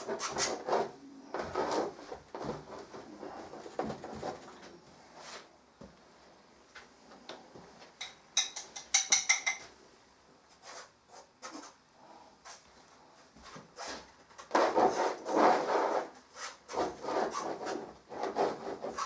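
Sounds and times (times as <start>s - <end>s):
tools and tins clicking and knocking: 8.0s - 9.7s.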